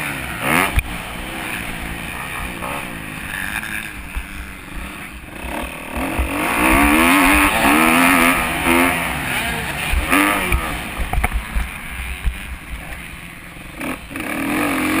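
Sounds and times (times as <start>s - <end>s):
motocross bike engine revving: 0.0s - 15.0s.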